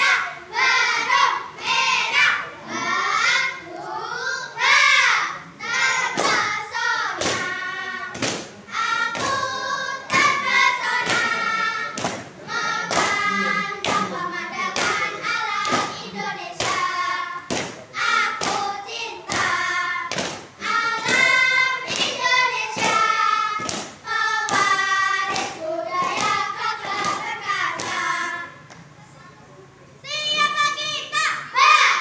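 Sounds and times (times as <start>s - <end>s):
children chanting in unison: 0.0s - 28.6s, 30.2s - 32.0s
rhythmic thuds: 5.7s - 28.6s.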